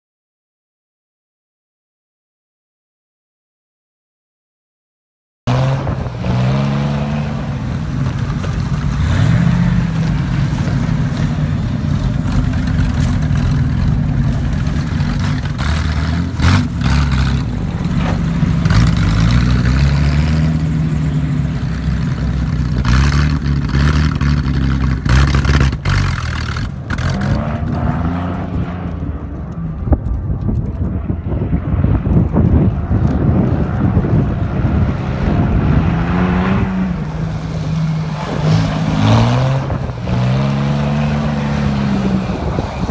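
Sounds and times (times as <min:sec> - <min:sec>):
engine revving up and down: 0:05.5 - 0:30.0, 0:31.0 - 0:42.9.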